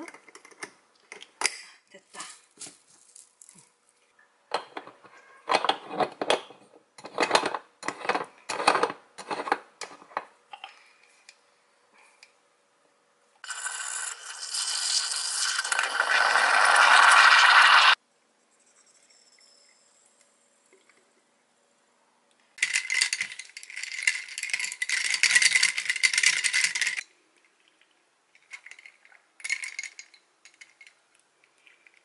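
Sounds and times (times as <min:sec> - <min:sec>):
moka pot hissing and gurgling: 0:13.4 - 0:18.0.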